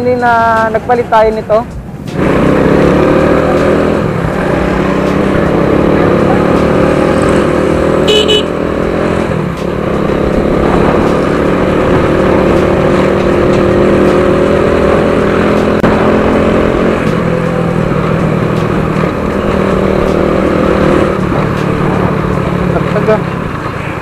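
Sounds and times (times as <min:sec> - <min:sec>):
motorcycle engine running: 0:00.0 - 0:24.0
road and wind noise: 0:00.0 - 0:24.0.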